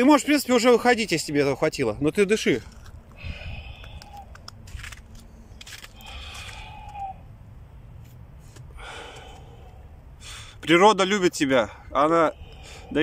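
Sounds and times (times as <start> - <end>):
steady low rumble: 0.0 - 13.0
man breathing deep and hard: 3.1 - 7.4, 8.5 - 10.6, 11.7 - 13.0.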